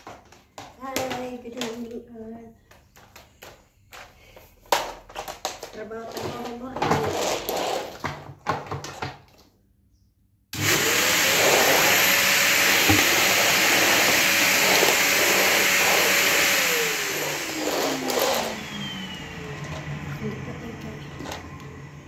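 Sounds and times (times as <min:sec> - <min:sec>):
vacuum cleaner motor running: 0:10.6 - 0:22.0.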